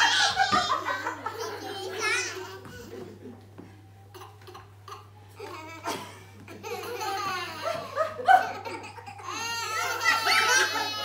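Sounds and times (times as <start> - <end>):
toddlers laughing and squealing: 0.0 - 3.2, 4.1 - 11.0.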